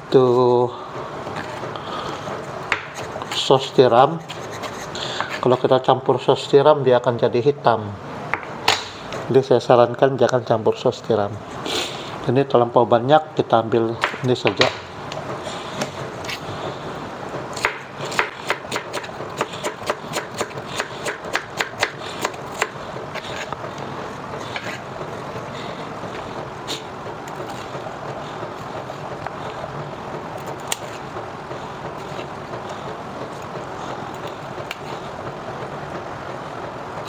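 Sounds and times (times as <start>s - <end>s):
steady background noise: 0.0s - 37.0s
blade scraping board: 4.2s - 5.5s, 17.6s - 27.8s
knife chopping on cutting board: 17.6s - 23.5s.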